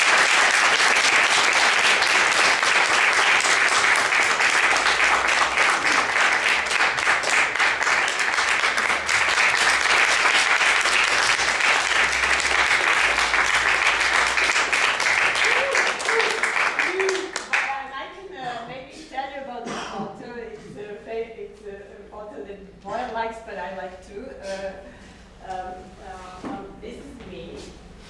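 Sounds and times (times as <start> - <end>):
audience applauding: 0.0 - 17.8.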